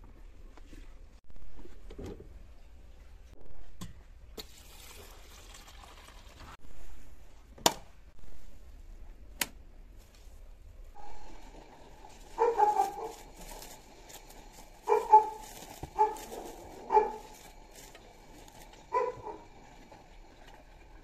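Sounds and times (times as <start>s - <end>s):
plastic film crinkling: 12.1s - 19.2s
dog barking: 12.4s - 13.4s, 14.8s - 17.4s, 18.9s - 19.5s.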